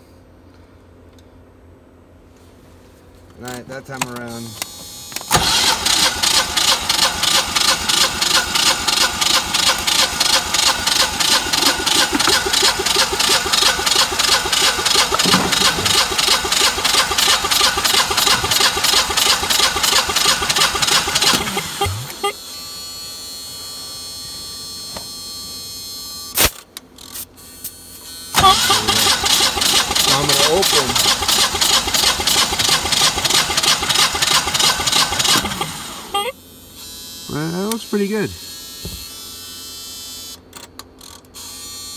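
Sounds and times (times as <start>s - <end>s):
generator engine cranking: 5.2s - 22.3s, 28.4s - 36.2s.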